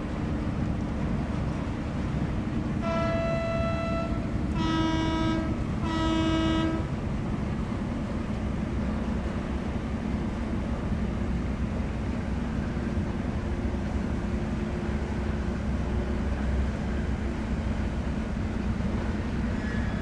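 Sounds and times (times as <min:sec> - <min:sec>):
horn blasts: 0:02.8 - 0:06.9.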